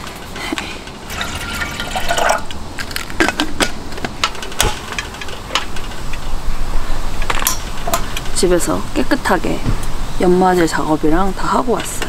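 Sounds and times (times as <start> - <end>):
water pouring into kettle: 1.1 - 2.5
clicks and knocks of handling: 1.9 - 6.3.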